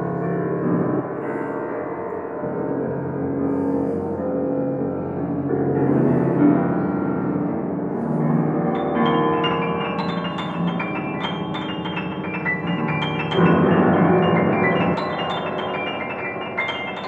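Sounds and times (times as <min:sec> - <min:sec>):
grand piano playing: 0:08.4 - 0:17.0.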